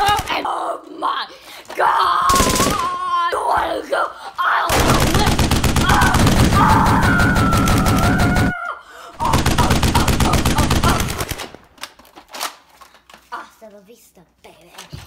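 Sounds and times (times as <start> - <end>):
machine-gun fire: 2.3 - 3.0, 4.7 - 8.5, 9.2 - 11.6.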